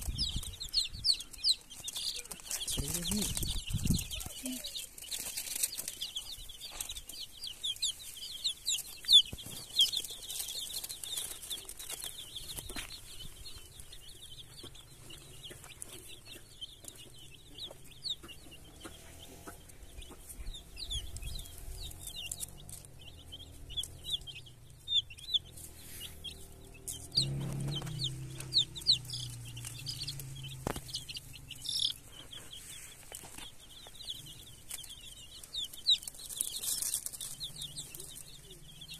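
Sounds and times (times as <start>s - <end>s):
chicks peeping: 0.0s - 38.9s
hen clucking: 0.0s - 38.9s.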